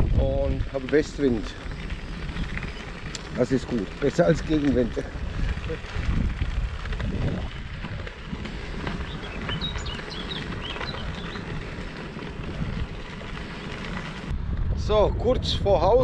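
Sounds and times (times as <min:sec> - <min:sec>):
wind rumbling on microphone: 0:00.0 - 0:16.0
small bird chirping: 0:09.0 - 0:11.5.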